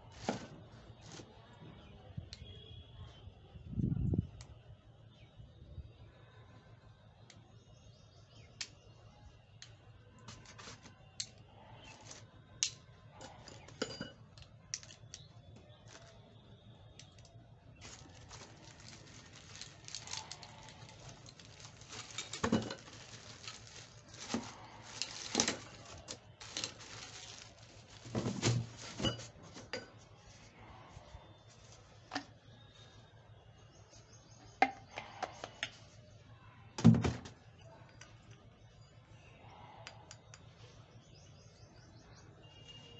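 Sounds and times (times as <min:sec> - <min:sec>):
plastic bag crinkling: 0:17.8 - 0:29.4.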